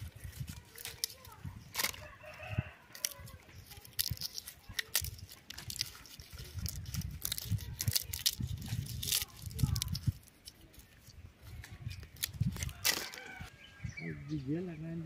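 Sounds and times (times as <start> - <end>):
dry pods and leaves crackling: 0.0 - 13.7.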